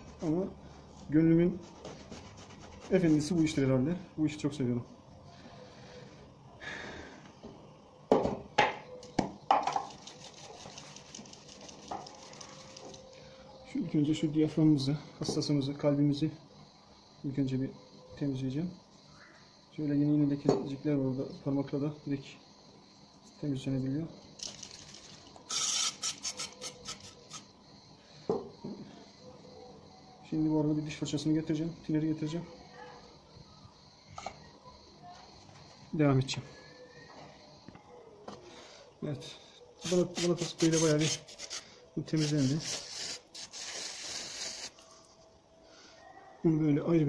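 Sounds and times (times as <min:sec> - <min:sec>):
metal parts scraping: 0:24.4 - 0:27.4.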